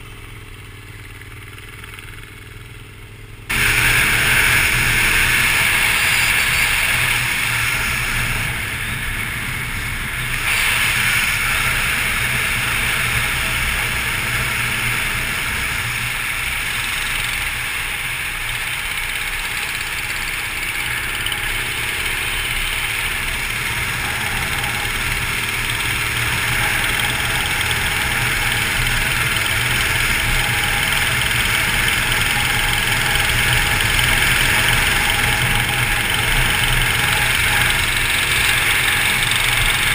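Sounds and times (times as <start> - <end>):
motorcycle engine: 0.0 - 39.9.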